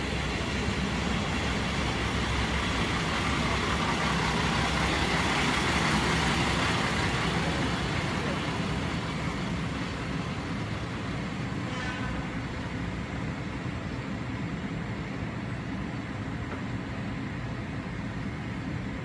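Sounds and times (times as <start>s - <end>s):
diesel railcar engine idling: 0.0s - 19.0s.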